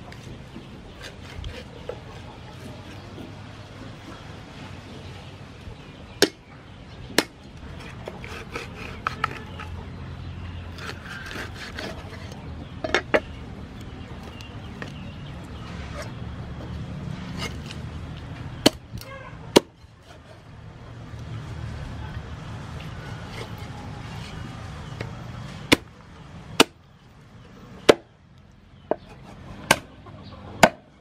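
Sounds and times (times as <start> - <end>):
cleaver chopping on wooden board: 6.2 - 6.4, 7.1 - 9.7, 18.6 - 19.8, 25.7 - 25.9, 26.6 - 26.8, 27.9 - 28.1, 29.7 - 29.9, 30.6 - 30.8.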